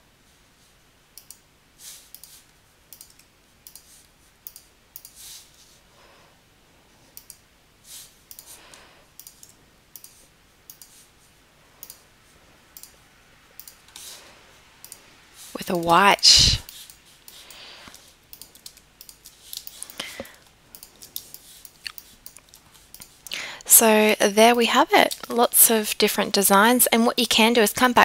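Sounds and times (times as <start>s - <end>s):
computer mouse clicking: 1.2s - 1.4s, 2.0s - 5.5s, 7.1s - 7.5s, 8.1s - 11.0s, 11.8s - 12.1s, 12.7s - 13.0s, 13.6s - 14.2s, 14.8s - 15.0s, 16.6s - 23.4s.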